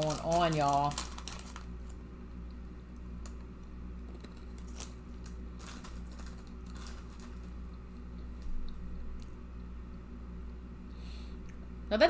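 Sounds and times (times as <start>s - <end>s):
snack packet crackling: 0.0s - 2.0s, 2.9s - 9.4s
low steady hum: 0.0s - 12.0s.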